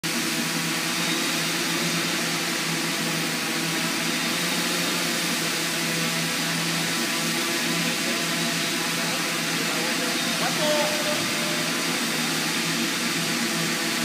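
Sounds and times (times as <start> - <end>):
drone rotors whirring: 10.4 - 12.9.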